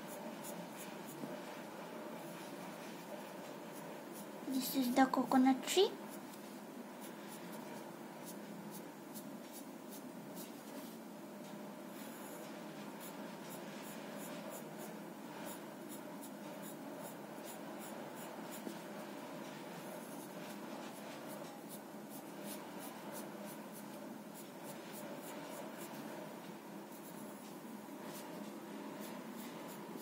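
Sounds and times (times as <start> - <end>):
pencil scratching on paper: 0.0 - 4.7, 12.0 - 19.1, 19.8 - 26.2, 26.9 - 30.0
steady low hum: 0.0 - 30.0.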